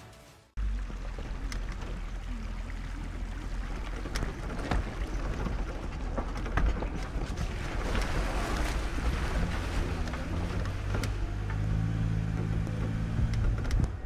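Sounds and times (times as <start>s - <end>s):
engine rumbling: 0.5s - 14.0s.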